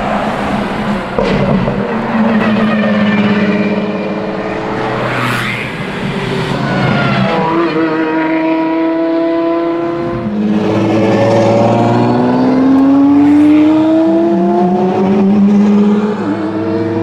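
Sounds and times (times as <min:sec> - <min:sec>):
car engine accelerating hard: 0:03.5 - 0:17.0.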